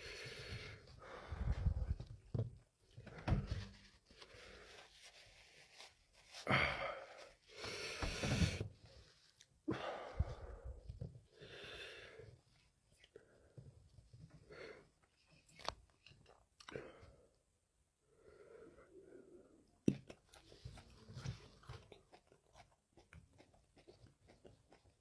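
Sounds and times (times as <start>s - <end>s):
man breathing heavily and sniffing: 0.0s - 2.1s, 6.2s - 12.6s.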